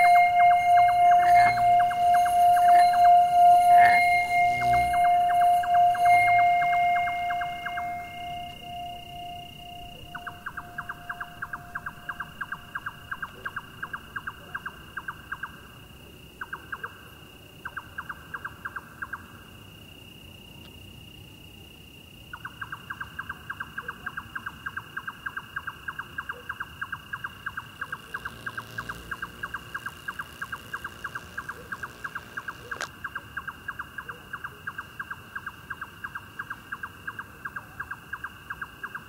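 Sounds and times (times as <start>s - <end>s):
thin high tone: 0.0s - 16.0s, 27.8s - 32.9s
cricket-like chirping: 0.0s - 39.0s.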